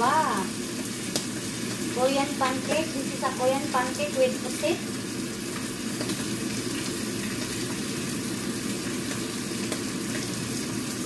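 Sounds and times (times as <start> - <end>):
food sizzling in a frying pan: 0.0 - 11.0.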